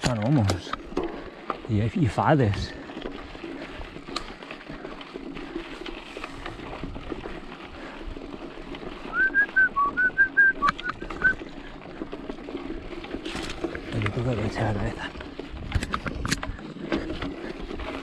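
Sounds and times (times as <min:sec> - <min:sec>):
person whistling short notes: 0:09.1 - 0:11.4.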